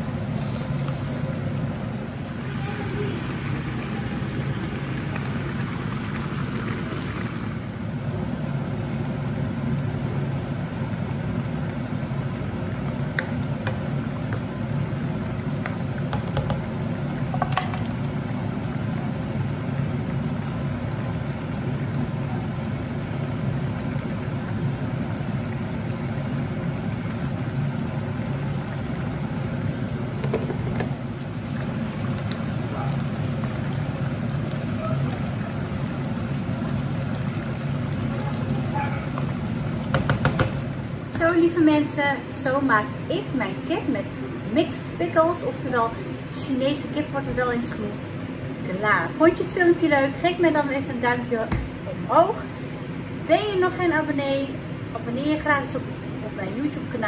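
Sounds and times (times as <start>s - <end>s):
sauce simmering in frying pan: 0.2s - 41.1s.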